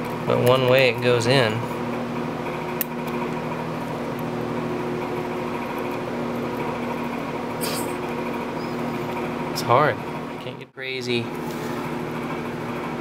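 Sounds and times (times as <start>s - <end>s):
steady mechanical hum: 0.0s - 13.0s
short scrape: 7.6s - 8.0s.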